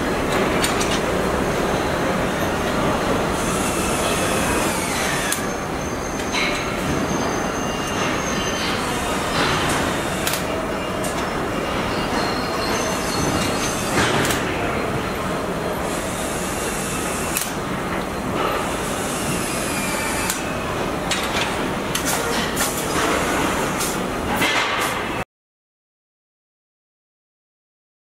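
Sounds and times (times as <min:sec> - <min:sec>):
sharp mechanical clicks and clanks: 0:00.3 - 0:01.1, 0:03.4 - 0:05.5, 0:07.9 - 0:11.3, 0:13.2 - 0:14.5, 0:15.9 - 0:19.1, 0:20.2 - 0:20.5, 0:21.1 - 0:25.0.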